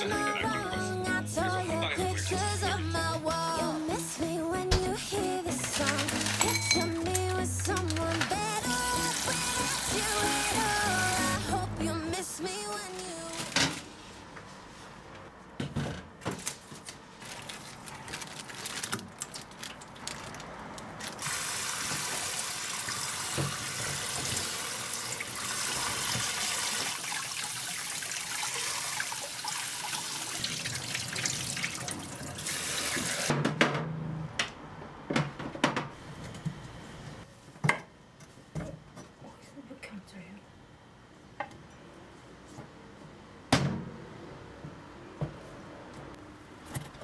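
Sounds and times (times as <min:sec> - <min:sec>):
tap water splashing: 0:23.2 - 0:24.5.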